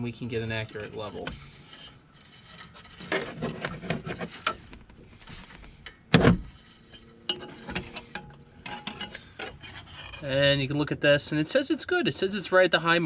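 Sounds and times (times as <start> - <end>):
loud thump: 6.1 - 6.5.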